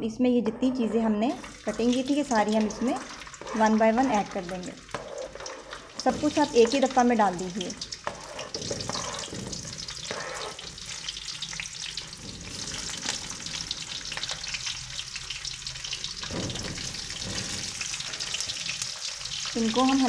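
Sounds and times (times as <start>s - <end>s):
vegetables sizzling in hot oil: 1.4s - 20.0s.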